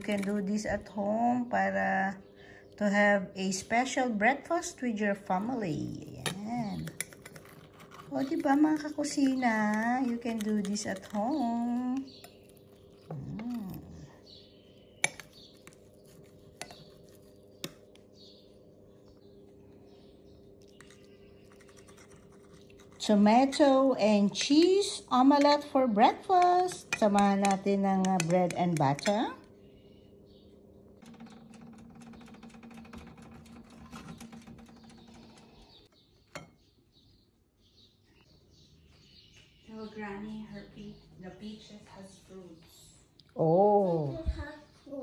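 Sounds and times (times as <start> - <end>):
faint steady hum: 0.0 - 31.1.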